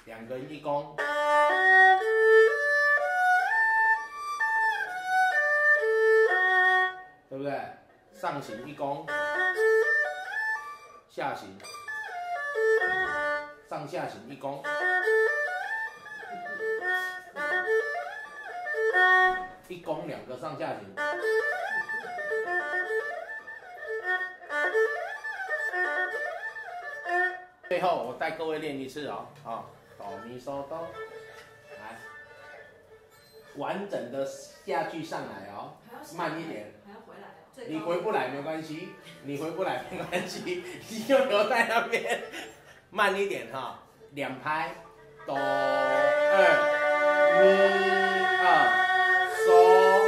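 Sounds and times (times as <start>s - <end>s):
erhu arpeggio: 0.4s - 7.3s, 8.1s - 29.0s, 29.6s - 33.0s, 44.8s - 50.0s.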